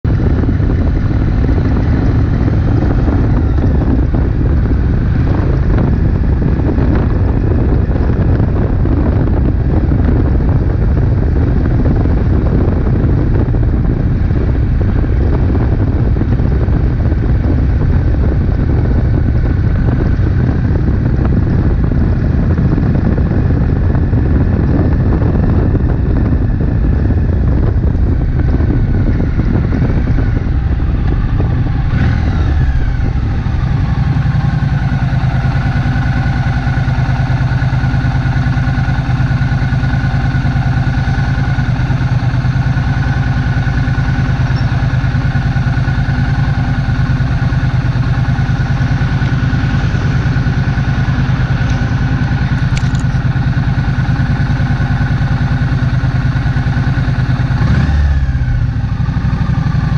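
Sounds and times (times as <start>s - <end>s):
motorcycle engine running: 0.0s - 59.9s
wind buffeting microphone: 0.0s - 59.9s.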